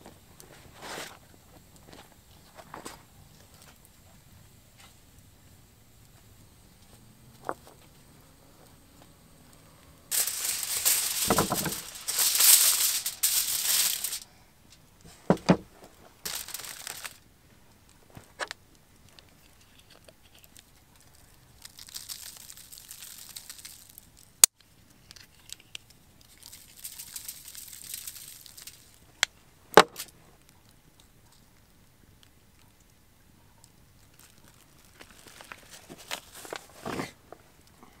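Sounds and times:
aluminium foil crinkling and tearing: 10.1 - 14.3, 15.8 - 17.2, 17.9 - 31.5, 34.0 - 37.8
pepper mill grinding: 10.1 - 14.3, 16.3 - 17.2, 21.6 - 24.0, 26.3 - 28.9
thump: 15.3 - 15.7.

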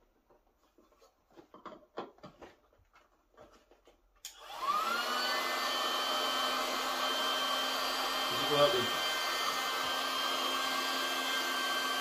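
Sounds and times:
electric air pump droning: 4.3 - 12.0.

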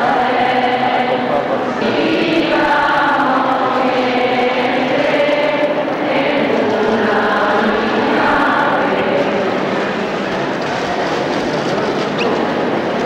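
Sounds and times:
group singing a slow hymn: 0.0 - 10.7.

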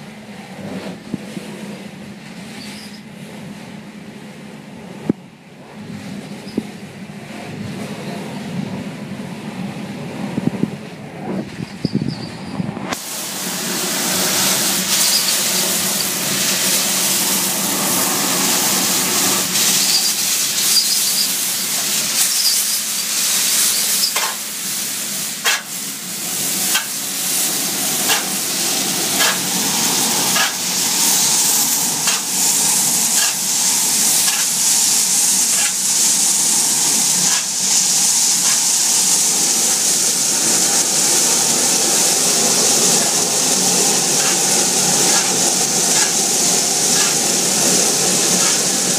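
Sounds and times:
vacuum hose hissing: 12.9 - 48.9.

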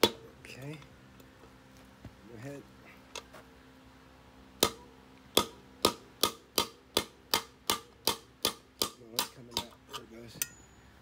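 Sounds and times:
hammer striking metal punch: 4.6 - 9.8.

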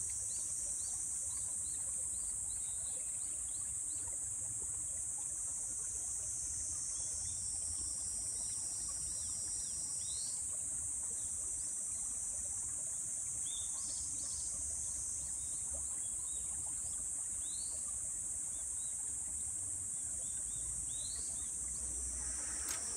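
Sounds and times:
high-pitched insect drone: 21.8 - 22.9.

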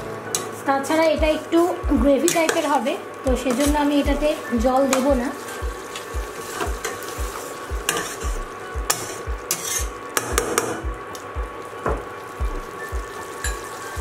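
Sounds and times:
steady low pulse: 7.2 - 9.4
spatula scraping metal pan: 8.9 - 9.9
spatula stirring thick gravy: 8.9 - 9.9.

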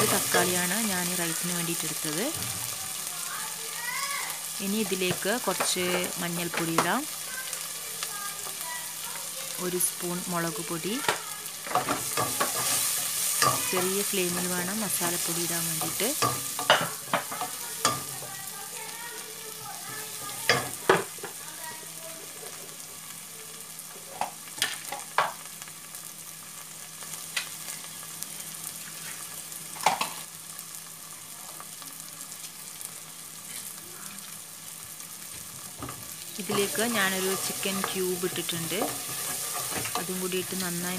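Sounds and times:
food sizzling in pan: 0.0 - 40.9
spatula scraping pan: 11.0 - 18.4, 36.4 - 40.6.

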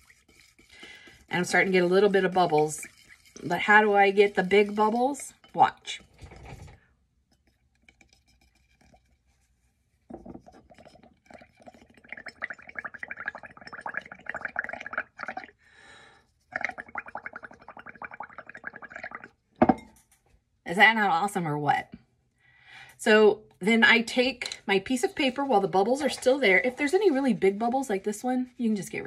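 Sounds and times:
blowing bubbles through a straw: 10.3 - 15.6, 16.2 - 19.4.

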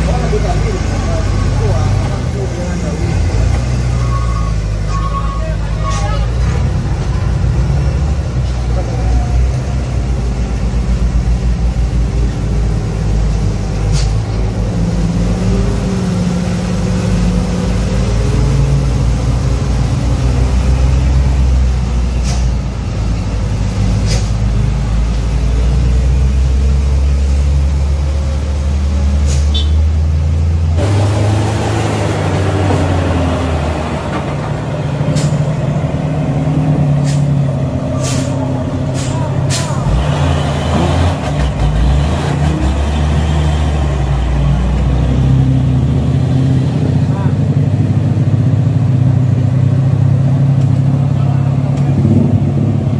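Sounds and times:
diesel truck engines droning: 0.0 - 52.9
air brake hisses: 37.0 - 37.3, 38.0 - 39.8.

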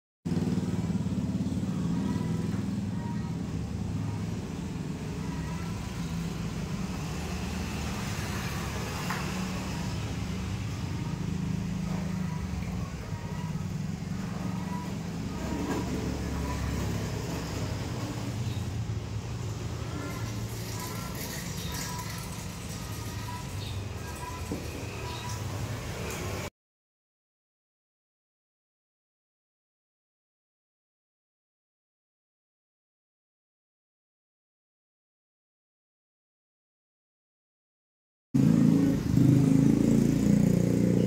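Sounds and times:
vehicle engine rumbling: 0.3 - 26.4.

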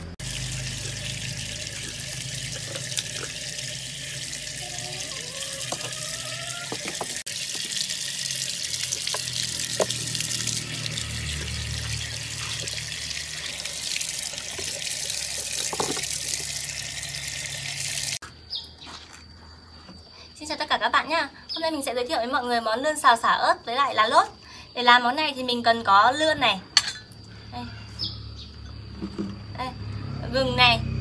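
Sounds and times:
water running from tap: 0.2 - 18.2
water splashing on concrete: 0.2 - 18.2.

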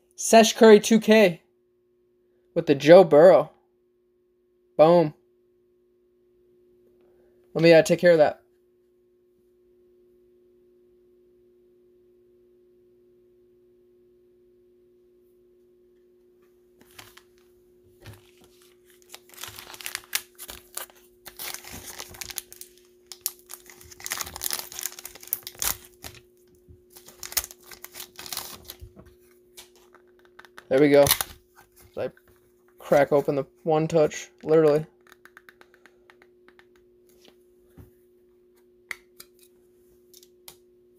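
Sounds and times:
faint steady hum: 0.0 - 40.9
plastic packaging crinkling: 18.0 - 32.0.

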